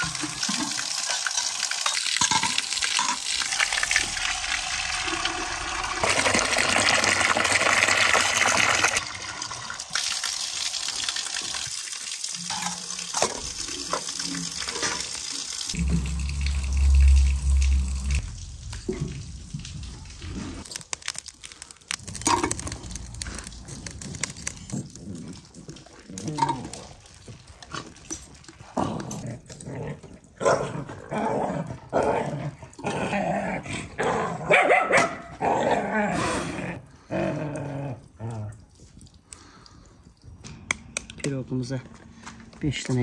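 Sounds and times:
dogs barking and growling: 28.6s - 38.7s.

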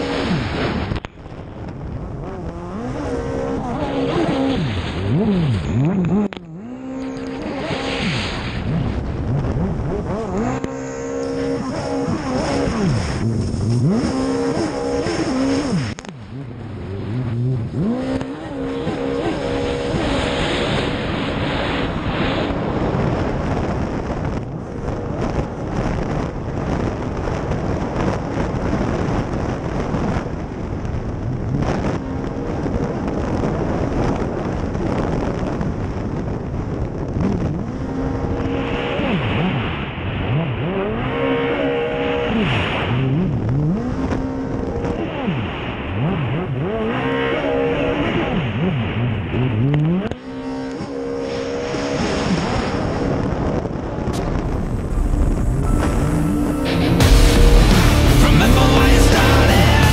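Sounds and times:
jet ski engine revving: 0.0s - 1.0s, 2.1s - 30.2s, 31.6s - 59.9s
wind and water spray rushing: 7.6s - 10.0s, 11.6s - 16.0s.

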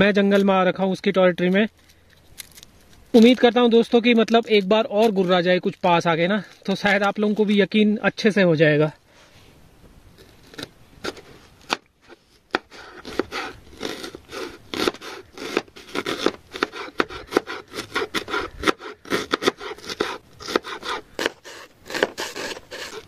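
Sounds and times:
knife chopping on wooden board: 12.5s - 23.0s.

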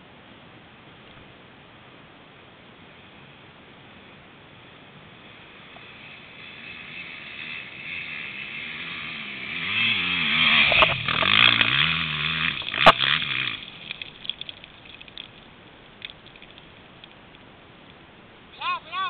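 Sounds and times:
dirt bike engine revving: 5.1s - 14.5s
sharp cracks: 9.7s - 18.0s.

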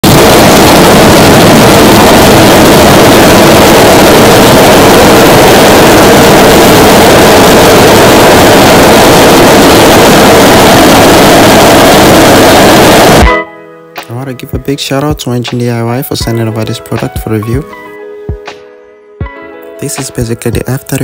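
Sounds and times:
model jet engine rushing: 0.0s - 13.3s.

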